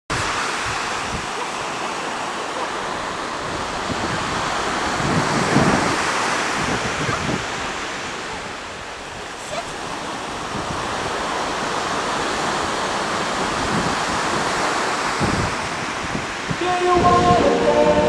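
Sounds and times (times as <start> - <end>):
ocean surf washing ashore: 0.1 - 18.0
wind buffeting microphone: 0.1 - 18.0.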